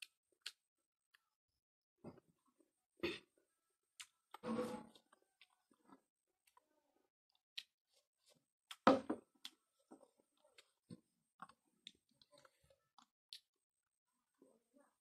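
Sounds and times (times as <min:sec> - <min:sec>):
mouth clicks and chewing: 0:00.0 - 0:00.6, 0:04.0 - 0:04.4, 0:10.4 - 0:13.6.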